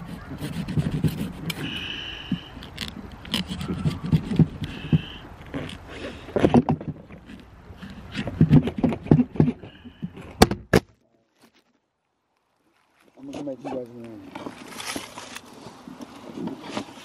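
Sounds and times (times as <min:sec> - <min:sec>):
knife chopping and scraping pumpkin: 0:00.0 - 0:10.4.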